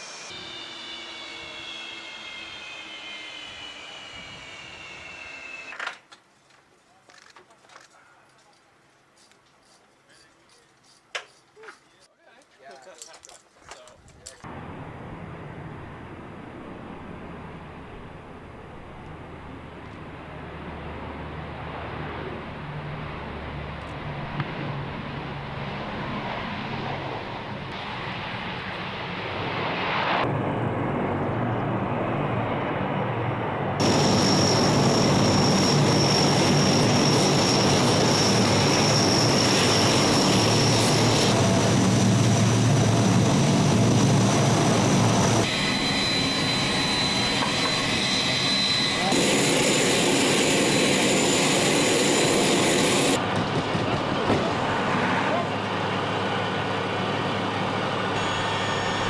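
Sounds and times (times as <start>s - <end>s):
turboprop engines whining: 0.0s - 6.0s, 14.2s - 59.0s
deep propeller drone: 14.5s - 59.0s.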